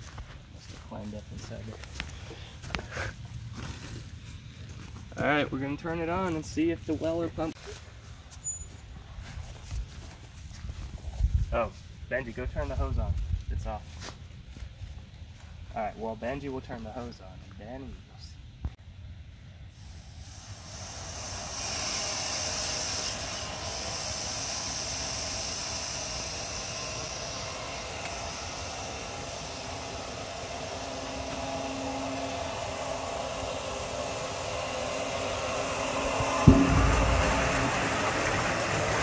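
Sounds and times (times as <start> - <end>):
pump humming: 19.8 - 39.0
pump clunk: 34.5 - 39.0.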